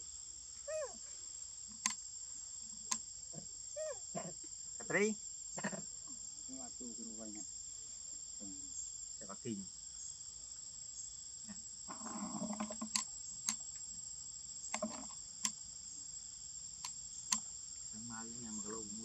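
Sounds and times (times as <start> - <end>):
insect chorus buzzing: 0.0 - 19.0
sharp clicks: 1.7 - 2.0, 12.6 - 13.9, 16.8 - 17.5.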